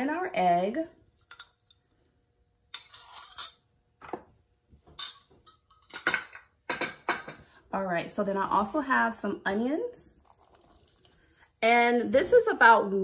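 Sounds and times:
kitchen bowls clinking: 4.9s - 7.5s.

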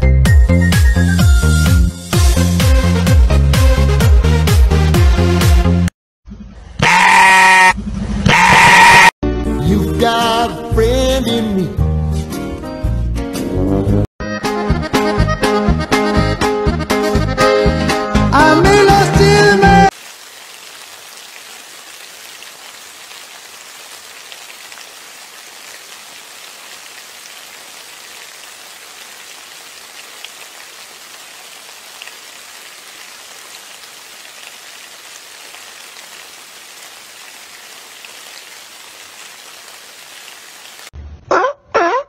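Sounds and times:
loud animal calls: 6.8s - 9.1s
steady rain: 19.8s - 41.0s.

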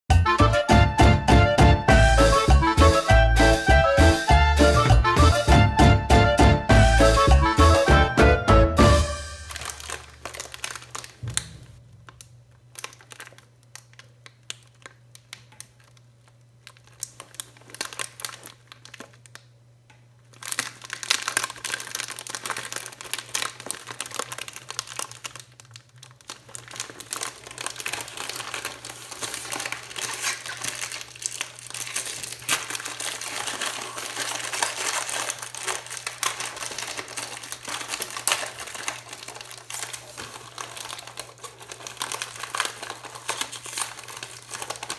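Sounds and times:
plastic wrapper crinkling: 8.9s - 44.9s.

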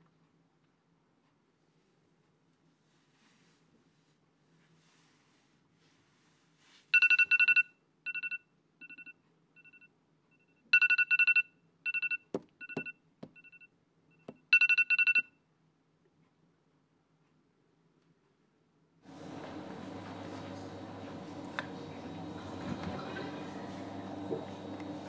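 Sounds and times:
electronic alarm beeping: 7.0s - 15.3s.

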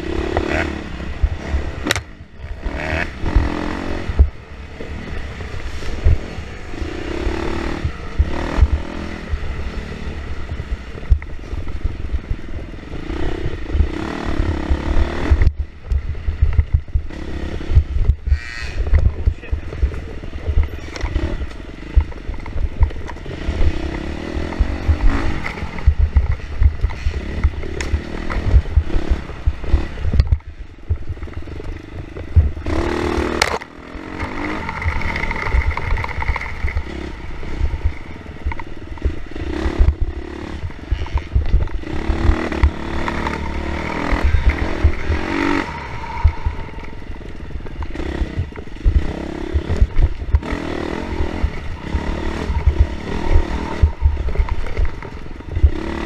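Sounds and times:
dirt bike engine revving: 0.0s - 30.2s, 31.0s - 56.0s
loud rush of noise: 11.8s - 56.0s.

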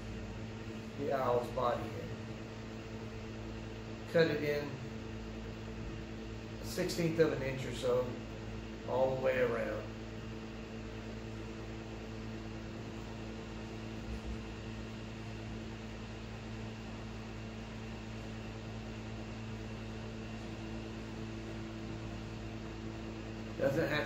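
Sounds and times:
electrical hum: 0.0s - 24.0s
constant hiss: 6.5s - 10.6s, 23.4s - 24.0s.

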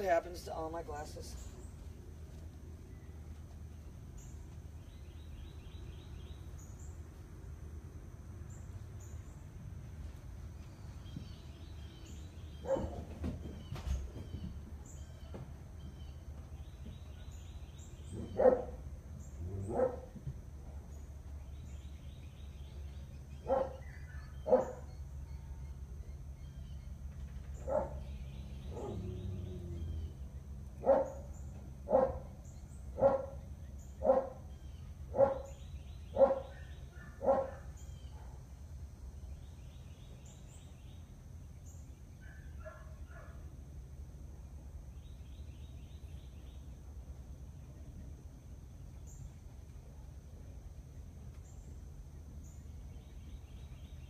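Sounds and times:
dog barking: 12.6s - 13.0s, 18.2s - 18.8s, 19.6s - 20.1s, 23.4s - 24.9s, 27.6s - 28.1s, 28.7s - 29.1s, 30.8s - 31.3s, 31.9s - 32.3s, 33.0s - 33.4s, 34.0s - 34.4s, 35.1s - 38.4s, 42.2s - 43.4s.

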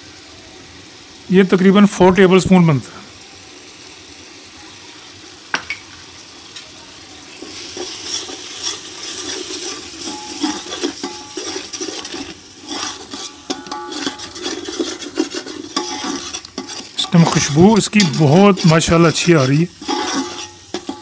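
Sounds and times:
spices sizzling in hot oil: 0.0s - 21.0s
metal spoon scraping a pot: 7.4s - 21.0s.

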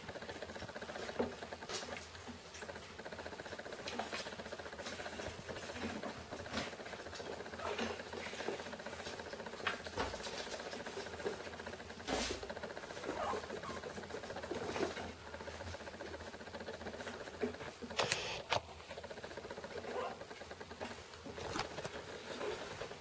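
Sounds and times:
lens stabiliser whirring buzz: 17.8s - 19.6s.

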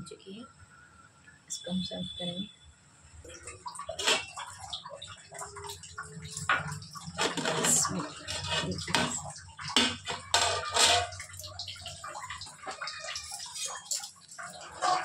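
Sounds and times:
metal lid scraping pan rim: 3.9s - 4.4s, 6.4s - 11.3s.

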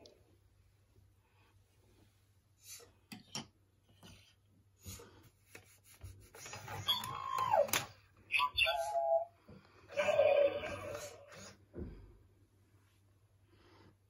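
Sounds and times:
hand rubbing plastic toy: 4.9s - 7.9s.

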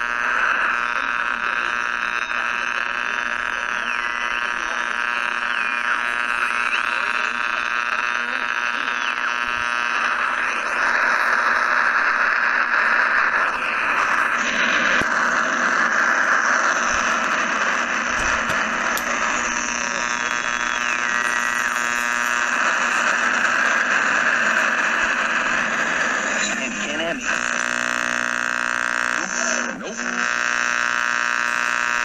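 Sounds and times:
radio static hiss: 0.0s - 32.0s
whistling tones: 5.3s - 6.0s, 20.2s - 21.2s.

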